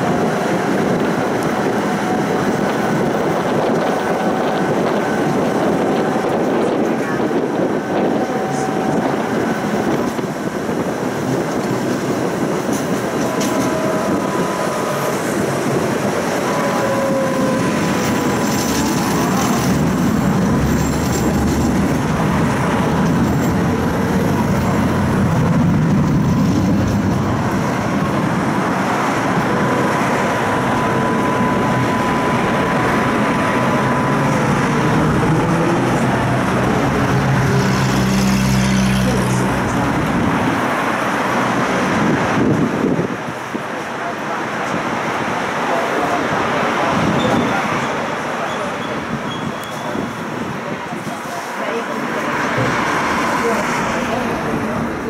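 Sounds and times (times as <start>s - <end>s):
tram wheels rumbling on track: 0.0s - 55.0s
faint gliding whine: 26.3s - 37.3s.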